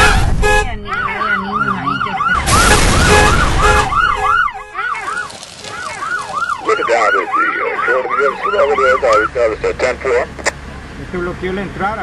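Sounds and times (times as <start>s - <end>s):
siren yelping: 0.8s - 9.7s
lower siren: 0.9s - 9.6s.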